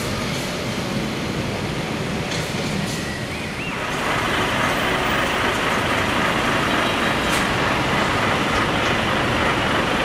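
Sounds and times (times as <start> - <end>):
diesel lorry engines rumbling: 0.0 - 10.0.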